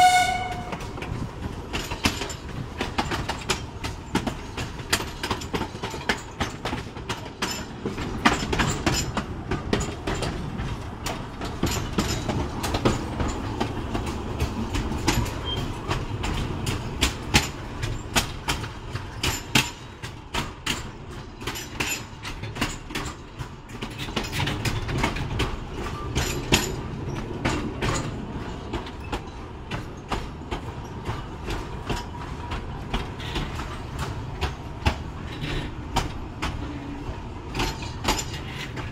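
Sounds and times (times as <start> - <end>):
train running rumble: 0.0 - 38.9
wheels clicking over rail joints: 0.0 - 38.9.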